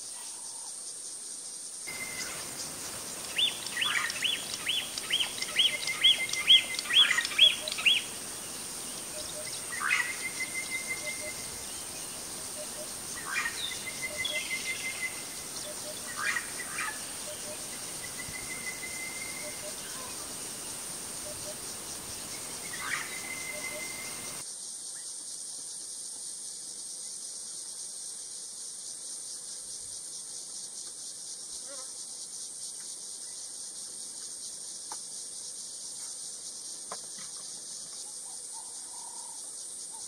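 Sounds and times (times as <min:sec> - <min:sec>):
insect hiss: 0:00.0 - 0:40.0
bird calls and trills: 0:01.9 - 0:24.4.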